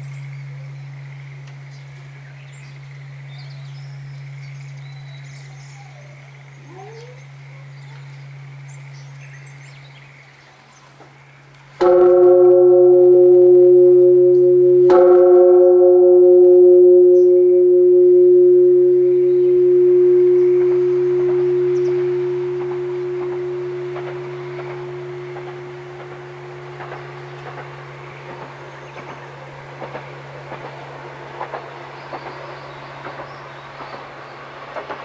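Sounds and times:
birds chirping: 0.0s - 15.7s, 16.3s - 34.8s
temple bell ringing: 11.8s - 34.9s.

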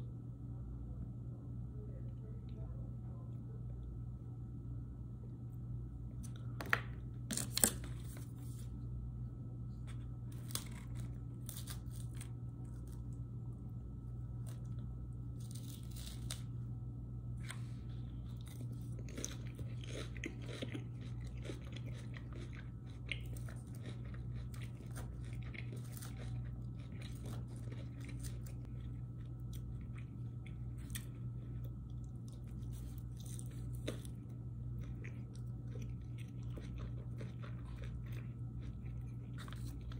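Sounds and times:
steady low hum: 0.0s - 39.9s
crunching and chewing salad: 9.6s - 39.9s.

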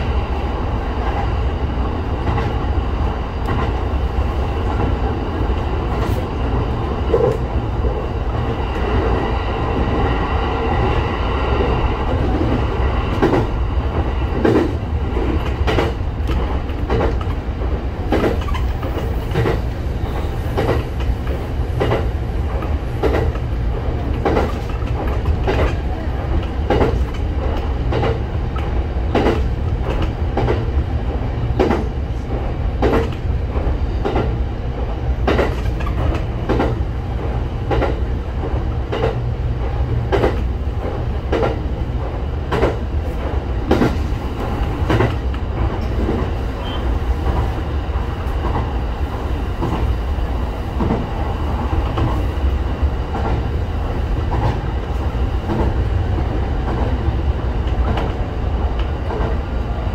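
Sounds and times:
train rumbling: 0.0s - 59.9s
wheels clicking over rail joints: 12.1s - 34.4s, 35.2s - 47.6s.

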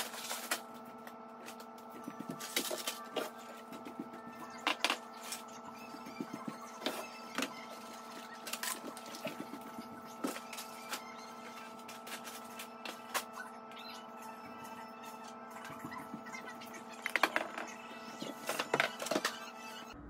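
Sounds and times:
packaging rustling: 0.0s - 0.7s
steady hum: 0.0s - 20.0s.

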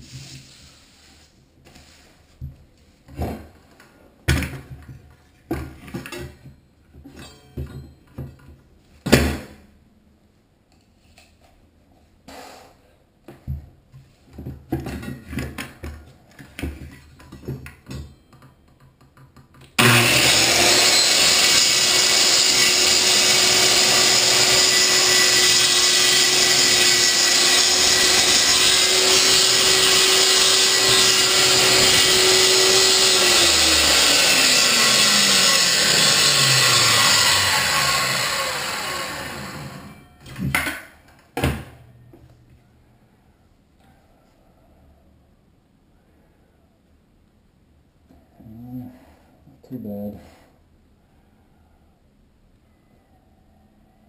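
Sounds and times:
circular saw cutting wood: 19.8s - 40.0s.

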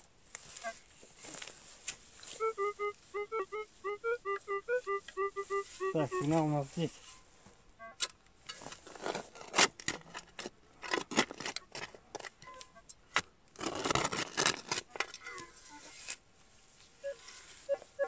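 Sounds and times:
spade digging into stony soil: 8.5s - 16.2s.

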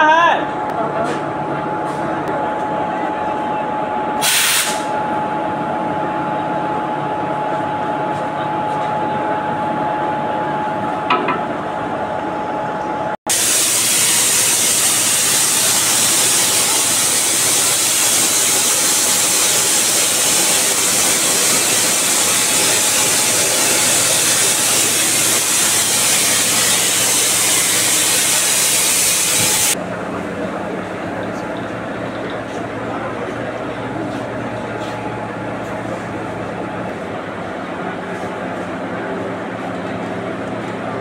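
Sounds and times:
machine whine: 0.0s - 41.0s
compressed air hissing: 4.2s - 4.9s, 13.3s - 29.8s.

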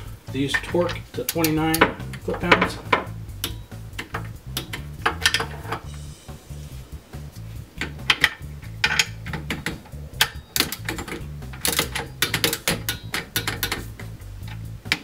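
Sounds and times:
background music with bass beat: 0.0s - 15.0s
ratchet wrench clicking: 3.0s - 5.9s, 7.8s - 15.0s.

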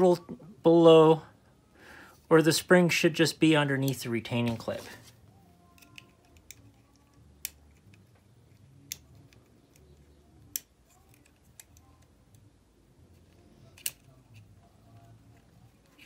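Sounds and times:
metal tool clicking on plastic: 5.7s - 8.1s.

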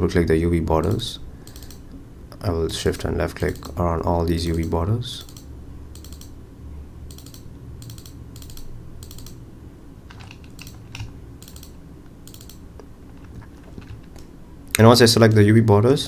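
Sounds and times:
faint low hum: 0.0s - 16.0s
computer mouse clicking: 0.8s - 2.0s, 3.4s - 3.8s, 4.5s - 6.4s, 7.1s - 9.4s, 10.1s - 14.3s.

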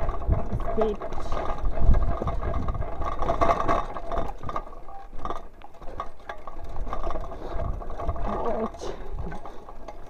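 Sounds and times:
bike rattling and clicking: 0.0s - 10.0s
bike tyres on dirt: 0.0s - 10.0s.

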